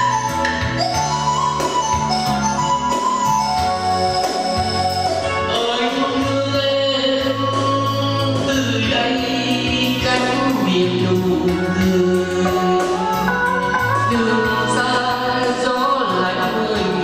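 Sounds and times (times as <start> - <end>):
keyboard accompaniment: 0.0 - 17.0
man singing: 5.4 - 17.0.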